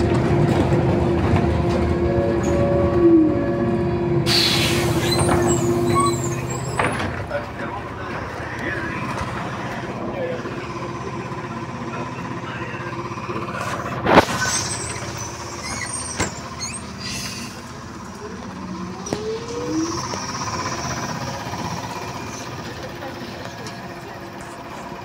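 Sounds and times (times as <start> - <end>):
bus doors clacking shut: 4.3 - 7.6, 14.0 - 23.8.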